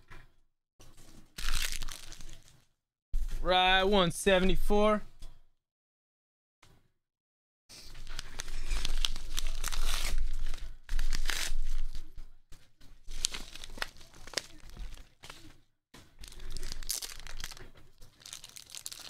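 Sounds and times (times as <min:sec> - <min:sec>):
padded mailer tearing and crinkling: 0:01.3 - 0:02.5, 0:07.9 - 0:12.1, 0:13.0 - 0:15.5, 0:16.2 - 0:19.0.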